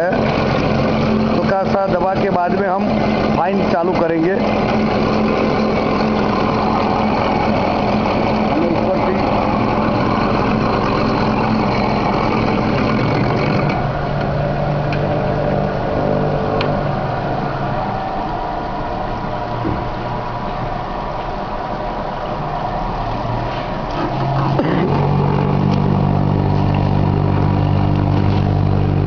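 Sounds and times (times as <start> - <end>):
glass grinding machine grinding: 0.0 - 16.1
motor hum: 0.0 - 29.0.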